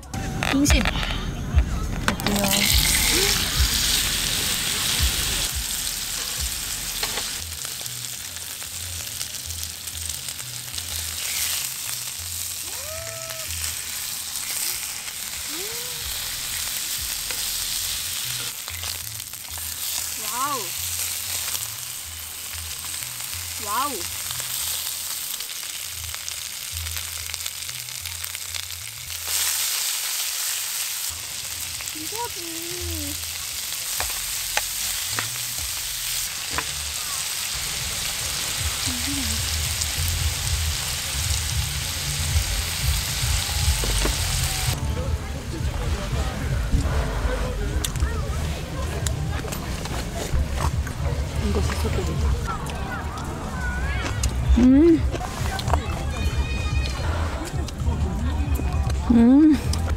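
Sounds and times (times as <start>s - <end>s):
beef sizzling: 2.2s - 44.8s.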